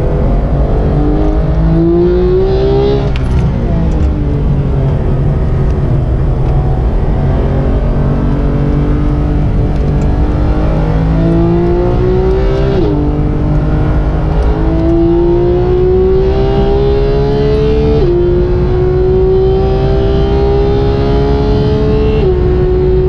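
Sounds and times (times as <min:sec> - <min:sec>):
car engine revving under full throttle: 0:00.0 - 0:23.0.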